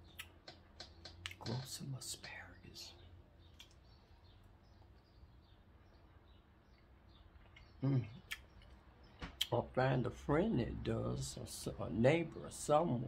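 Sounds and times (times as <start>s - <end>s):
faint low hum: 0.0s - 13.0s
person humming: 7.8s - 8.2s.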